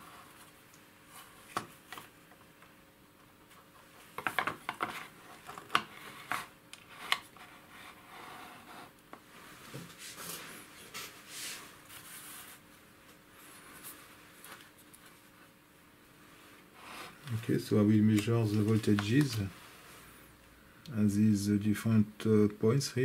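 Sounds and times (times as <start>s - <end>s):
soft rubbing and rustling: 4.8s - 15.6s, 16.2s - 20.2s.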